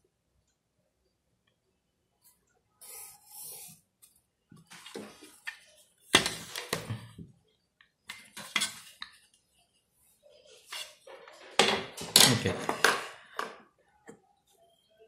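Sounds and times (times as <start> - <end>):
pencil scratching along ruler: 2.8 - 3.8.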